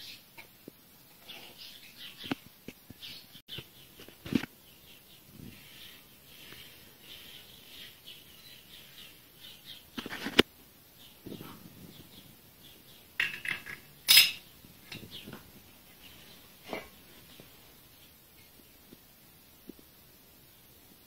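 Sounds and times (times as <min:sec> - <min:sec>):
steel parts clinking: 0:13.2 - 0:15.1.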